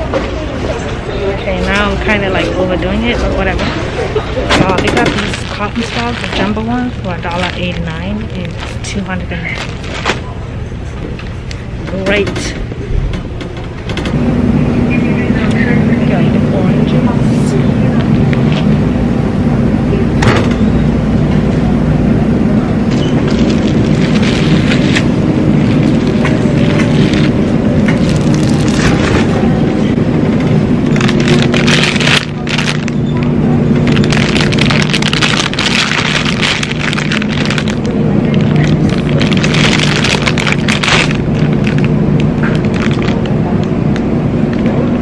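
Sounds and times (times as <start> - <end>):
steady low hum: 0.0 - 45.0
steady low rumble: 0.0 - 45.0
groceries knocking in shopping cart: 4.5 - 10.2
plastic bag crinkling: 4.6 - 10.4, 22.9 - 29.4, 30.8 - 43.5.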